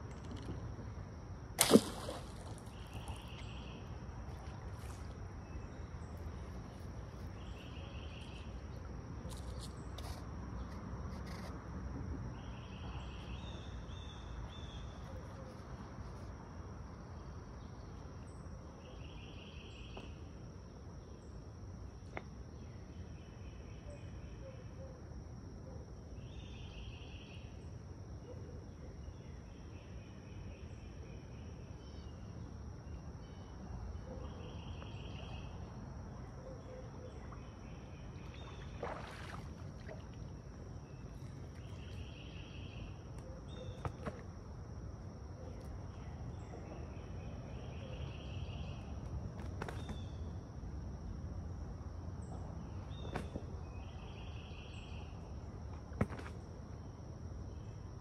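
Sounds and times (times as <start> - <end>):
insects droning: 0.0 - 58.0
insect buzzing calls: 1.6 - 11.6.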